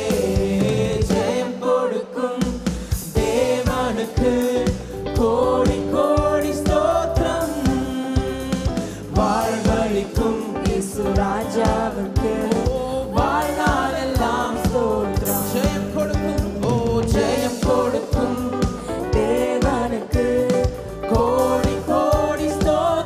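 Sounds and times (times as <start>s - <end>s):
band with steady drum beat: 0.0s - 1.6s, 2.4s - 23.0s
man singing into microphone: 5.5s - 23.0s.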